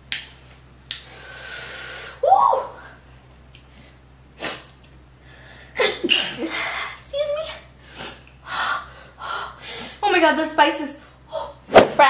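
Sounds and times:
woman breathing hard: 5.2s - 5.8s, 7.8s - 10.0s.

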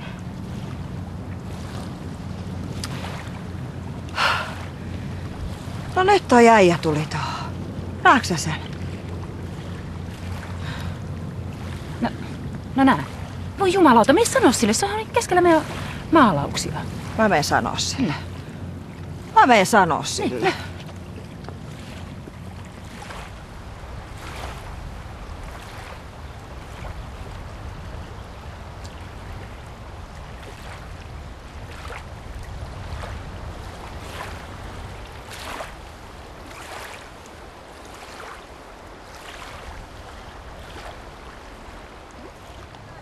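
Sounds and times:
small waves washing on rocks: 0.0s - 43.0s
wind on microphone: 0.0s - 43.0s.

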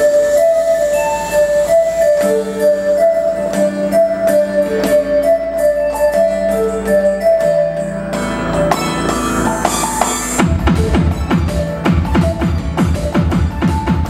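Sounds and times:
keyboard-like melody and chords: 0.0s - 14.0s
electronic drum hits: 8.7s - 14.0s.

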